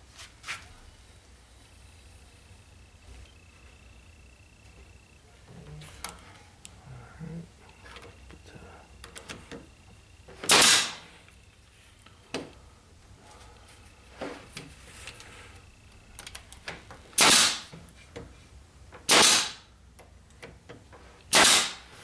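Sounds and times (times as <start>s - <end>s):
pneumatic nailer firing: 10.4s - 11.1s, 17.1s - 17.7s, 19.0s - 19.7s, 21.3s - 22.0s.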